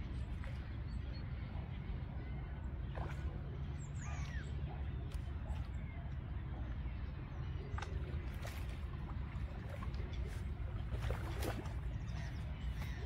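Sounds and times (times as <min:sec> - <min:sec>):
birds calling: 0:00.0 - 0:13.0
steady low rumble: 0:00.0 - 0:13.0.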